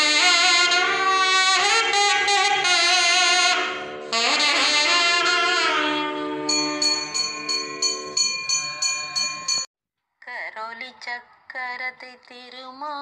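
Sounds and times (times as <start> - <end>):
wind instrument melody: 0.0 - 9.6
small bell ringing: 6.5 - 9.7.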